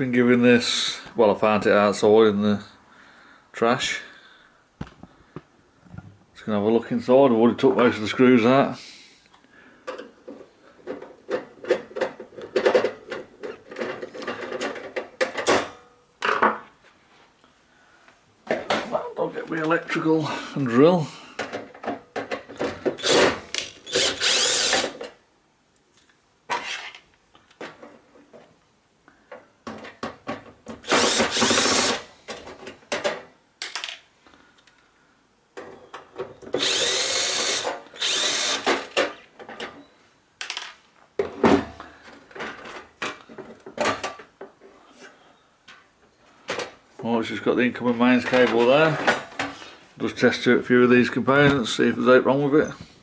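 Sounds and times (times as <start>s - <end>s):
cordless drill running: 23.0s - 25.0s, 30.8s - 32.1s, 36.6s - 38.8s.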